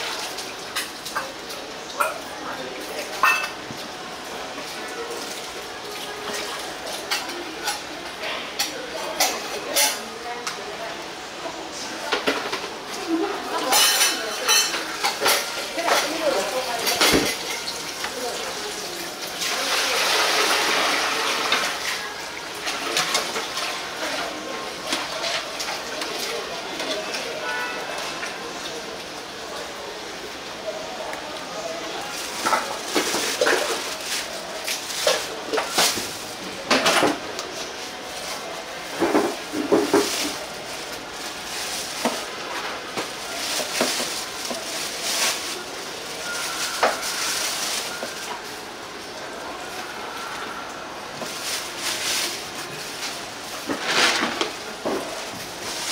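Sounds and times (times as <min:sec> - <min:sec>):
dishes and utensils clattering: 0:03.0 - 0:03.8, 0:12.1 - 0:18.0, 0:32.3 - 0:34.1.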